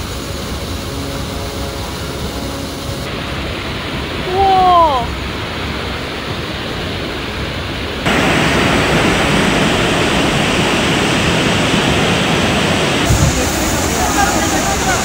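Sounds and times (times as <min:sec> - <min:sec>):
floodwater rushing: 0:00.0 - 0:15.0
dull low thump: 0:13.1 - 0:13.8.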